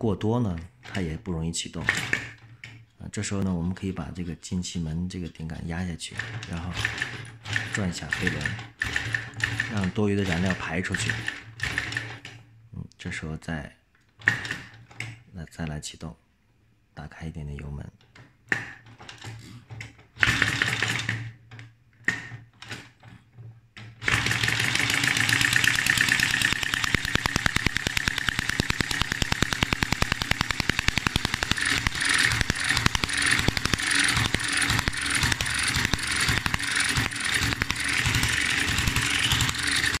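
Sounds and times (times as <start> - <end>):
small engine popping and running: 24.0 - 40.0
light regular ticking: 25.3 - 40.0.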